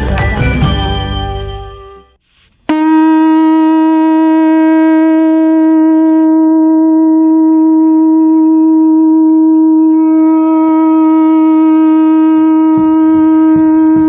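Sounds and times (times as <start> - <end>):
music: 0.0 - 2.2
conch shell trumpet note: 2.7 - 14.0.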